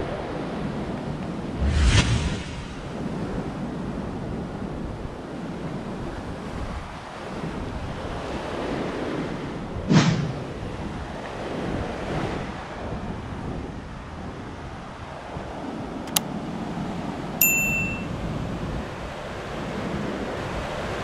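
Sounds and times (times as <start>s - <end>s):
wind on microphone: 0.0s - 16.0s
surf washing on sandy shore: 0.1s - 21.0s.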